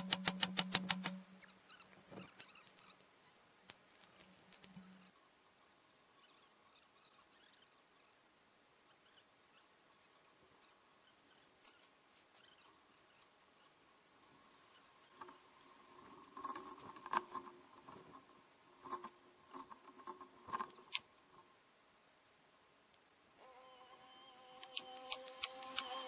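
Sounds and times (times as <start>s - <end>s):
faint clicks and rattles: 0.0s - 1.2s, 14.6s - 21.6s
sharp loud click: 0.0s - 1.2s, 24.6s - 26.0s.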